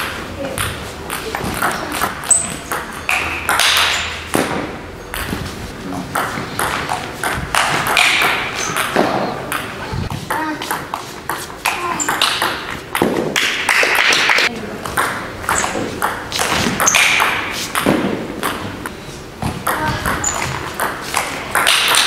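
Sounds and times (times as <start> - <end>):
table tennis ball clicks: 0.6 - 4.1.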